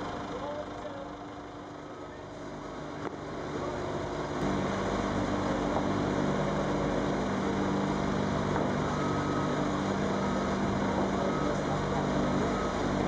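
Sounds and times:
forklift engine running under load: 0.0s - 13.0s.

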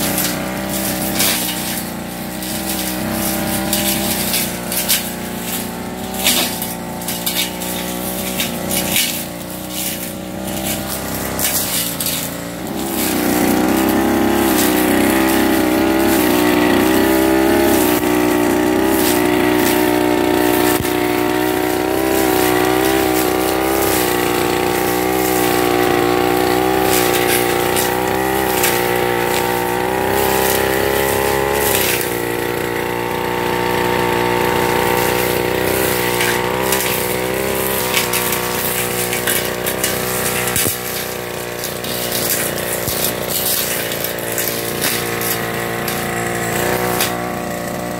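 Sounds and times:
brush cutter engine running: 0.0s - 47.9s.

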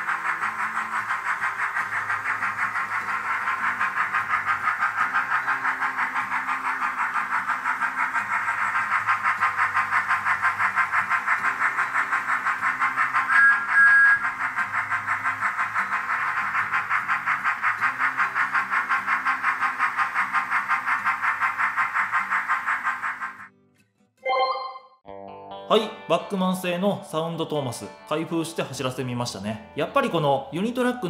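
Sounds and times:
model train steam chuffs: 0.0s - 23.5s, 27.0s - 31.0s
train whistle: 13.3s - 14.3s.

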